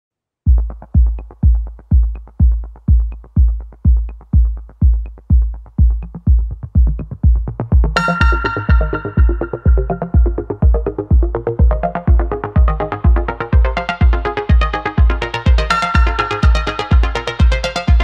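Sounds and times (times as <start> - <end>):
electronic music: 0.5 - 18.0
heavy kick drum: 0.5 - 18.0
bright synthesizer chord: 8.0 - 11.2.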